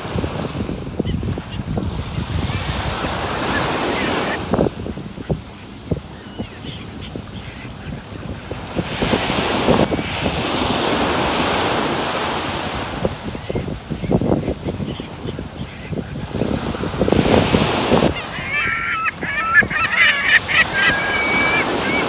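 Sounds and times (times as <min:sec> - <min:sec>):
waves washing ashore: 0:00.0 - 0:22.0
wind buffeting microphone: 0:00.0 - 0:22.0
faint bird calls: 0:06.1 - 0:08.3, 0:18.1 - 0:22.0.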